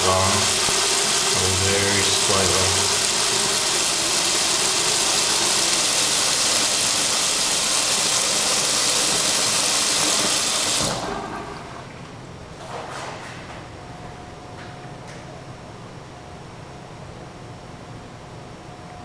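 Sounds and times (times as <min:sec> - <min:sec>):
tap water running into sink: 0:00.0 - 0:11.6.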